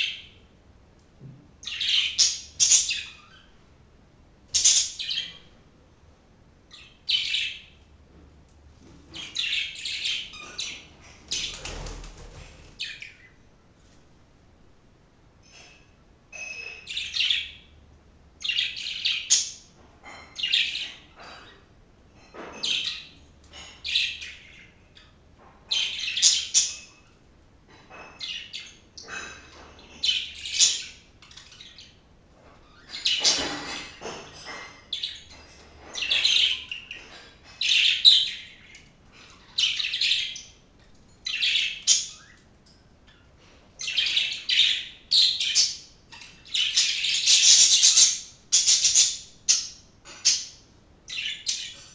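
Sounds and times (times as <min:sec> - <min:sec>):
budgerigars chirping: 0:01.6 - 0:03.5, 0:04.5 - 0:05.4, 0:43.8 - 0:51.8.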